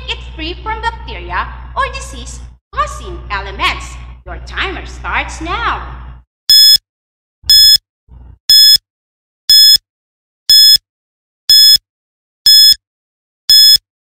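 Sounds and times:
short electronic beeps: 6.5 - 6.8, 7.5 - 7.8, 8.5 - 8.8, 9.5 - 9.8, 10.5 - 10.8, 11.5 - 11.8, 12.5 - 12.8, 13.5 - 13.8.

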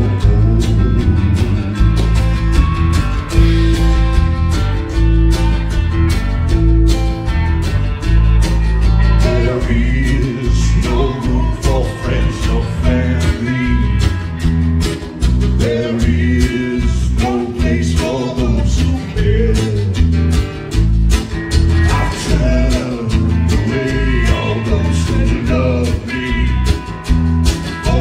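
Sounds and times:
man singing: 0.0 - 2.2, 9.1 - 14.5, 15.5 - 20.2, 21.8 - 27.0, 27.7 - 28.0
bass guitar: 0.0 - 28.0
drums: 0.0 - 28.0
electric guitar: 0.0 - 28.0
strummed acoustic guitar: 0.0 - 28.0.

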